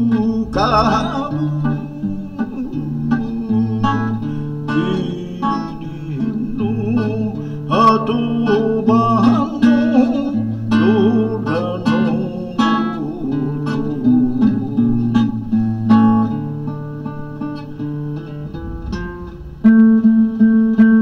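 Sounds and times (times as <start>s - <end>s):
held bass notes: 0.0s - 7.4s, 13.0s - 21.0s
classical guitar melody: 0.0s - 21.0s.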